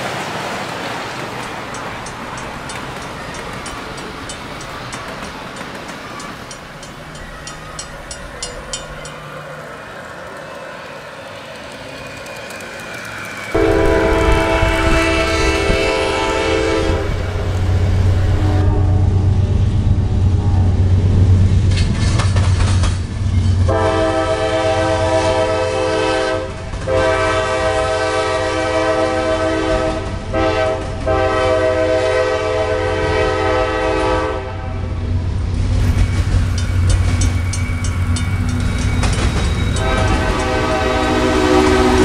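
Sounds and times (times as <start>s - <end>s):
train rumbling on track: 0.0s - 42.0s
wheels clicking over rails: 1.3s - 13.6s, 21.6s - 23.6s, 35.6s - 42.0s
train horn blasts: 13.5s - 20.7s, 23.6s - 34.9s, 39.6s - 42.0s.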